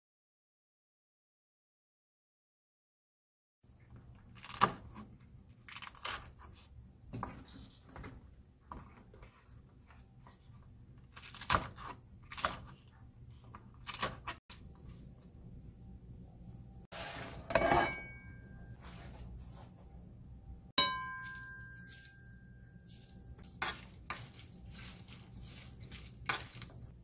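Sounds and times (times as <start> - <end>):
knife cutting peppers: 4.2 - 7.8, 11.0 - 14.7, 22.9 - 27.0.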